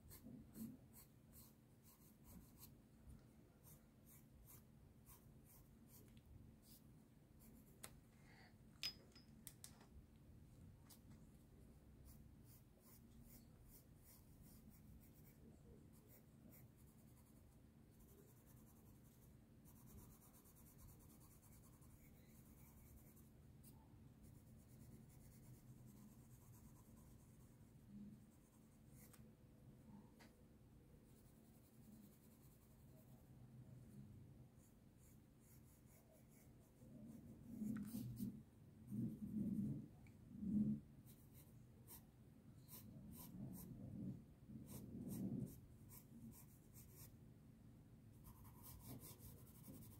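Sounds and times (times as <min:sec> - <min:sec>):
pencil scratching on paper: 0:00.0 - 0:02.8, 0:03.6 - 0:06.9, 0:12.0 - 0:29.2, 0:35.0 - 0:39.8, 0:40.6 - 0:47.1, 0:48.2 - 0:49.9.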